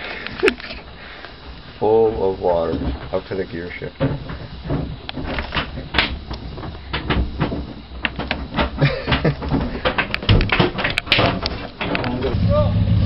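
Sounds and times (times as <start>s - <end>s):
irregular knocks and clatter: 2.6s - 12.4s
steady low rumble: 11.5s - 13.0s.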